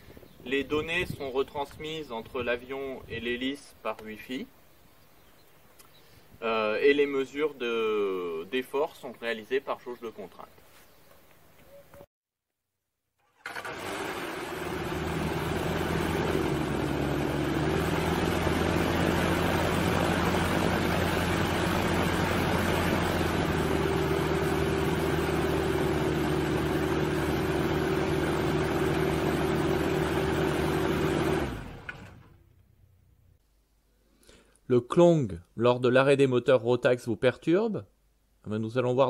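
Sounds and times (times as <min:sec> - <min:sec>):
engine winding down: 0:13.2 - 0:33.2
aircraft engine running: 0:13.4 - 0:32.4.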